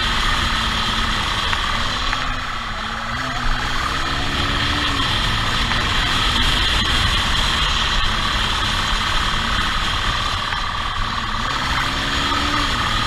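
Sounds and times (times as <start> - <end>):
motorcycle engine running: 0.0 - 13.0
wind rush on microphone: 4.0 - 13.0.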